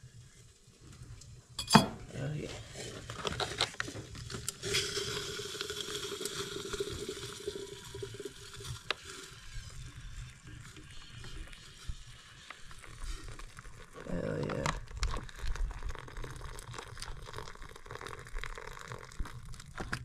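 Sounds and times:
water pouring into pouch: 0:02.6 - 0:20.0.

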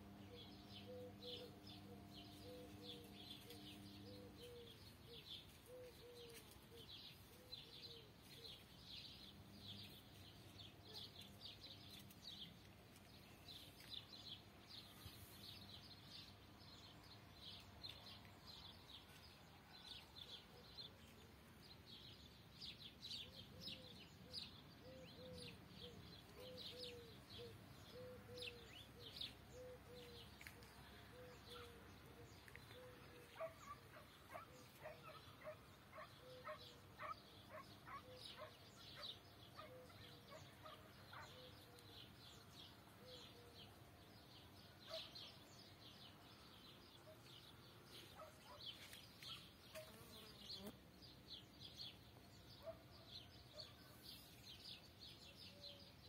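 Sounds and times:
small birds chirping: 0:00.0 - 0:56.0
pigeon cooing: 0:05.7 - 0:06.4, 0:24.8 - 0:33.5.

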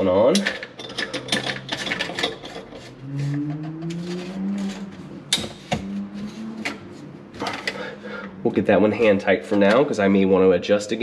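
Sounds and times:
low rising tone: 0:03.0 - 0:08.7.

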